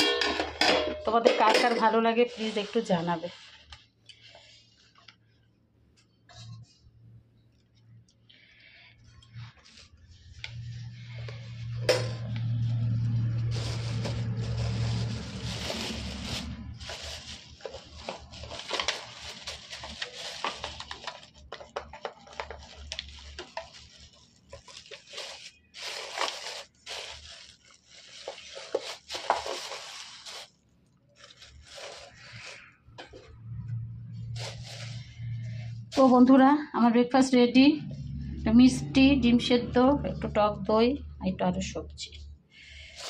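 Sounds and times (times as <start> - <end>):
plastic bag rustling: 0.0 - 5.4, 8.6 - 36.4, 42.6 - 43.0.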